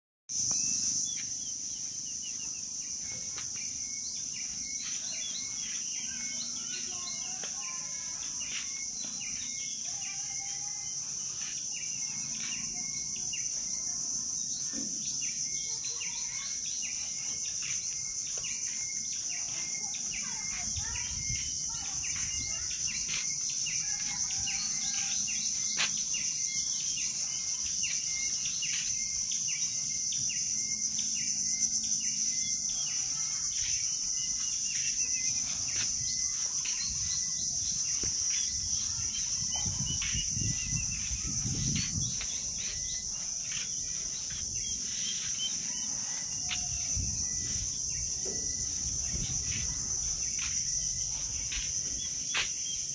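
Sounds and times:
bird chirps: 0:00.3 - 0:52.9
insects droning: 0:00.3 - 0:52.9.

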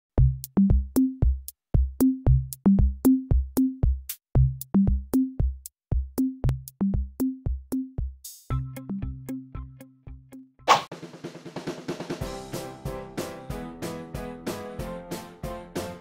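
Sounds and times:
bass notes: 0:00.2 - 0:01.4, 0:02.0 - 0:10.4
electronic drum-machine beat: 0:00.2 - 0:08.7.

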